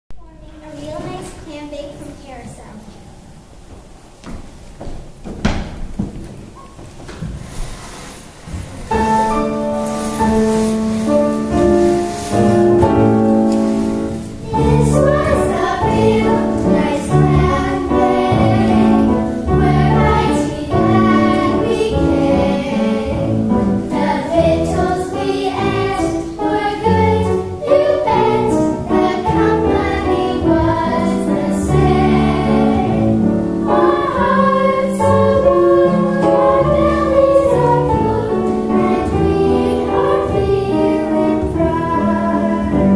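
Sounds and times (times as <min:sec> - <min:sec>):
girls singing in chorus: 0:13.8 - 0:42.9.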